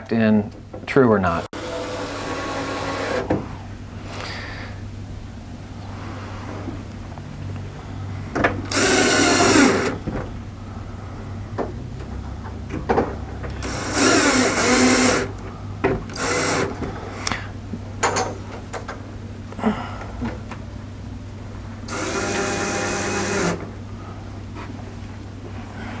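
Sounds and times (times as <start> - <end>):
screw gun motor whine: 1.6 - 3.3, 8.7 - 10.0, 13.6 - 15.4, 16.1 - 17.3, 21.9 - 23.6.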